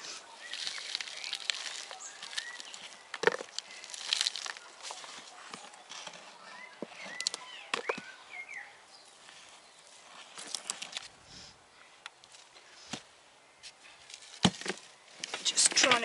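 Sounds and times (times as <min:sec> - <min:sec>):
hands rustling in potting mix: 0:00.0 - 0:11.6
bird chirping: 0:00.1 - 0:10.7
plastic pots clicking: 0:00.5 - 0:08.1.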